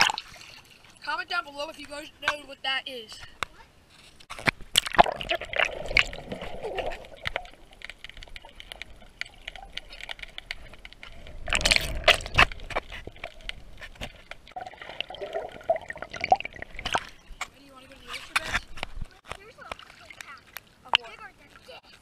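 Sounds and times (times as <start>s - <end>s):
sharp underwater clicks: 4.2s - 21.6s
underwater gurgling and bubbling: 4.8s - 17.4s
rushing surge of water: 14.5s - 17.2s.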